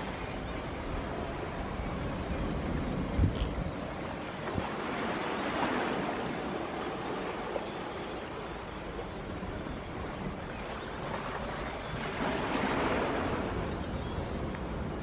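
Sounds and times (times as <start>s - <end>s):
sea waves washing against rocks: 3.8s - 13.8s.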